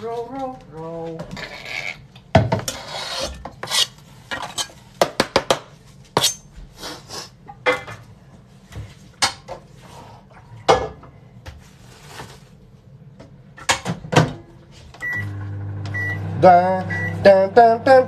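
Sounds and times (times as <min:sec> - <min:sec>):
microwave humming: 0:13.0 - 0:18.0
microwave beeps: 0:15.0 - 0:17.6.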